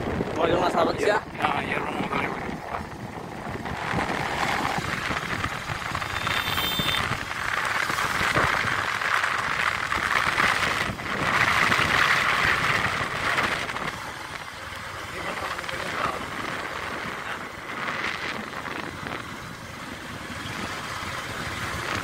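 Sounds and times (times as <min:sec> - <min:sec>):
wind over microphone: 0:00.0 - 0:14.4, 0:15.1 - 0:22.0
vehicle road noise: 0:00.0 - 0:22.0.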